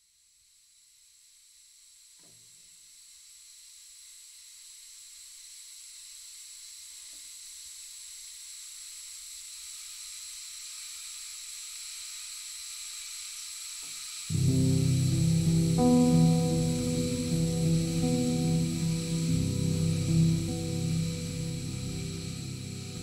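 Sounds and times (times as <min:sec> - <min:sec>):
high-pitched hiss: 0:00.0 - 0:23.0
faint low tones: 0:14.3 - 0:23.0.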